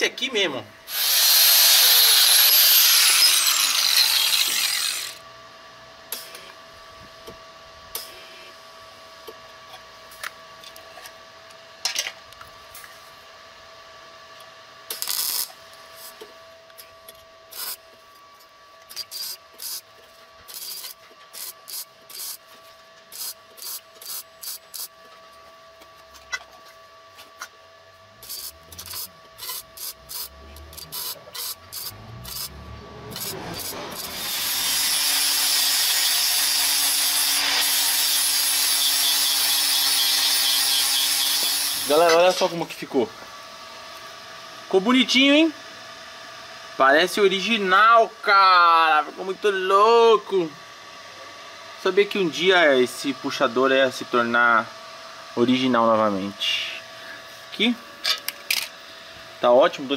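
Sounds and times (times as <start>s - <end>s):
power tool winding down: 0.9s - 5.2s, 28.2s - 42.5s
scraping strokes on metal: 17.5s - 17.8s, 18.9s - 19.9s, 20.5s - 22.4s, 23.1s - 24.9s, 28.2s - 42.4s.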